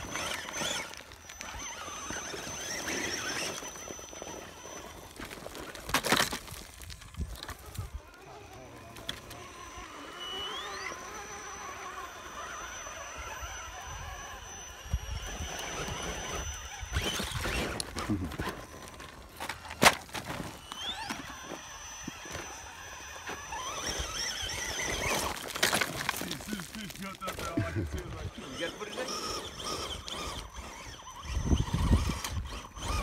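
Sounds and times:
electric motor whine: 0.0s - 33.0s
tyres scrabbling on gravel: 0.0s - 33.0s.

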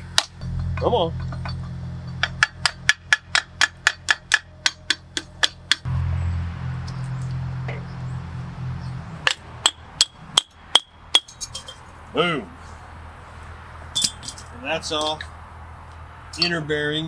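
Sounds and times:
steady low hum: 0.0s - 17.0s
hammer beating on steel: 0.2s - 5.9s, 9.2s - 11.7s
ringing metal strikes: 9.2s - 11.9s, 13.9s - 14.5s.

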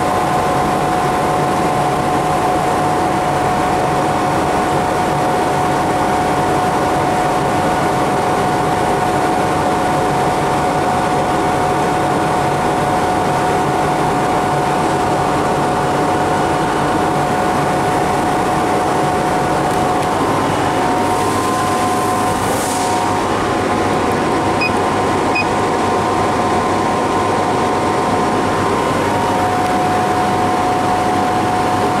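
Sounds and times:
laser cutter fans whirring: 0.0s - 32.0s
keypad beeps: 24.6s - 25.5s.

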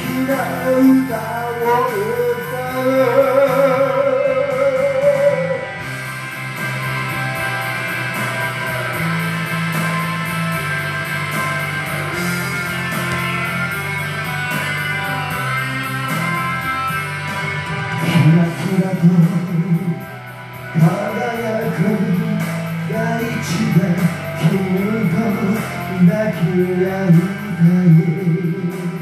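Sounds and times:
man singing a held note: 0.0s - 5.6s
rock backing track: 0.0s - 29.0s.

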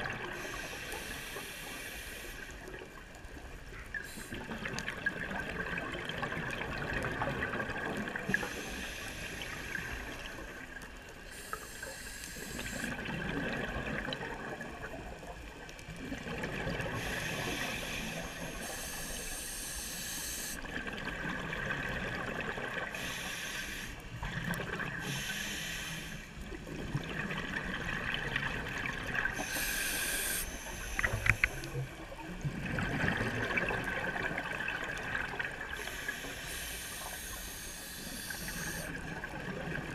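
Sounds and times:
regulator hiss on inhale: 0.2s - 3.0s, 4.0s - 4.5s, 8.2s - 13.0s, 16.9s - 20.7s, 22.9s - 24.2s, 25.0s - 26.6s, 29.3s - 32.0s, 35.6s - 39.0s.

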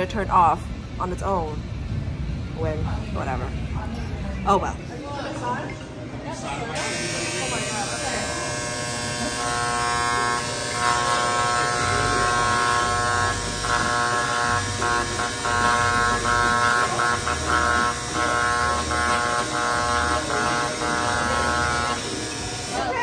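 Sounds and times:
electric engraving pen buzzing: 6.8s - 23.0s.

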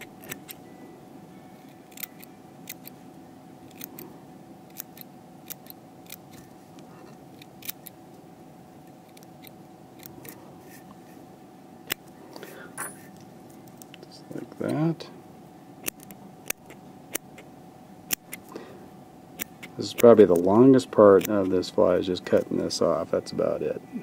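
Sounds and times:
scissors snipping: 0.0s - 0.6s, 1.6s - 3.0s, 3.7s - 4.0s, 4.7s - 6.5s, 7.4s - 8.0s, 19.4s - 20.5s.

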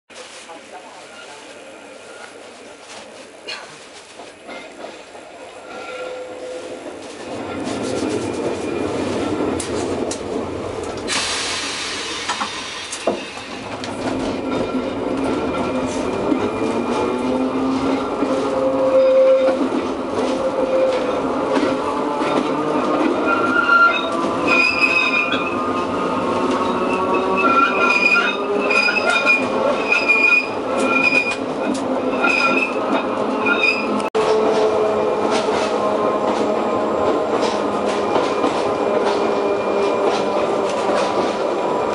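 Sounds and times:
tram rumble: 0.1s - 41.9s
high wheel squeals: 18.7s - 19.6s, 23.2s - 25.6s, 26.5s - 31.4s.

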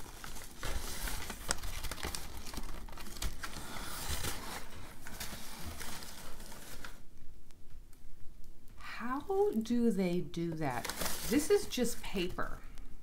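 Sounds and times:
paper crinkling and rustling: 0.0s - 7.1s, 10.6s - 12.4s.

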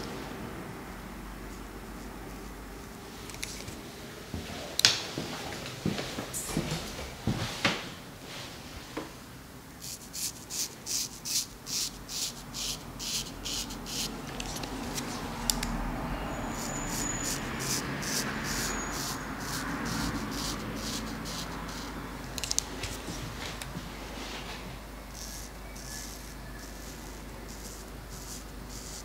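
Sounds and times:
razor scraping a scalp: 9.8s - 15.6s, 16.4s - 23.2s, 25.1s - 29.0s.

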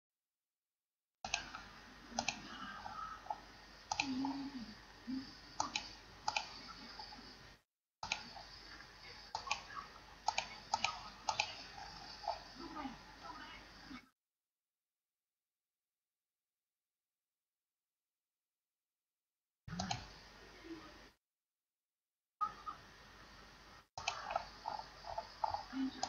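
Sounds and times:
computer mouse clicks: 1.3s - 4.6s, 5.6s - 7.2s, 8.0s - 12.5s, 19.7s - 20.2s, 24.0s - 26.0s.

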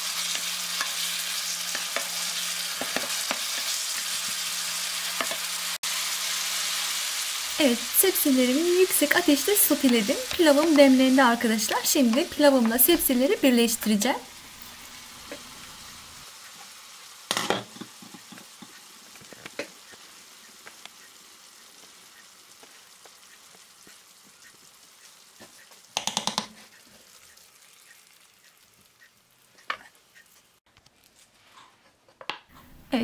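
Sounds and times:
vegetables sizzling in a frying pan: 0.0s - 30.6s.

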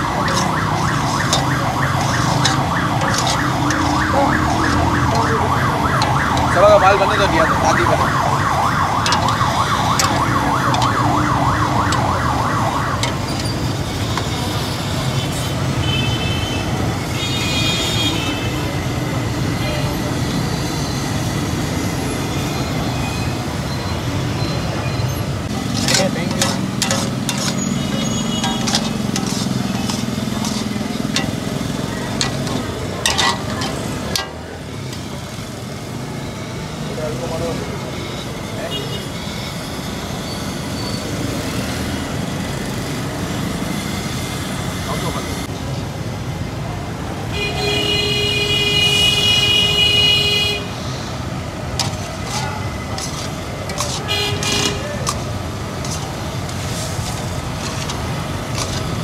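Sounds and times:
metal spatula scraping a pan: 0.0s - 7.8s, 9.0s - 12.1s, 25.5s - 35.2s, 51.8s - 59.0s
vehicle siren wailing: 0.0s - 14.4s.

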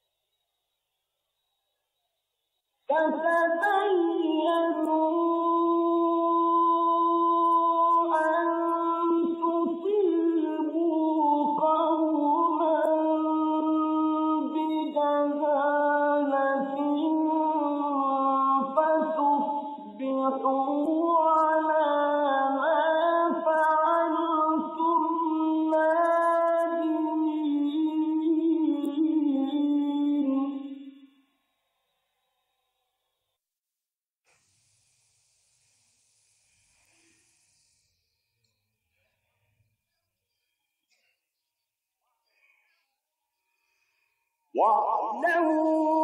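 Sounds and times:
man reciting in sustained voice: 2.9s - 31.1s, 44.6s - 46.0s.

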